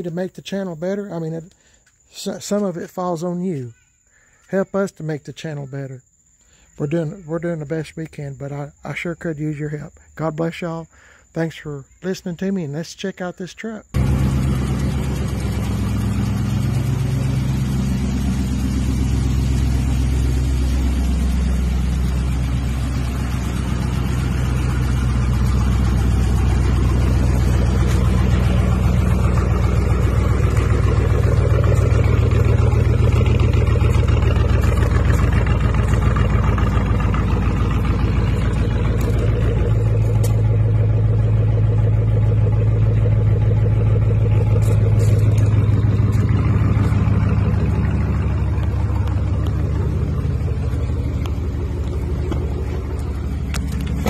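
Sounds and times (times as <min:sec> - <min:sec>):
pickup engine idling: 0:13.8 - 0:54.0.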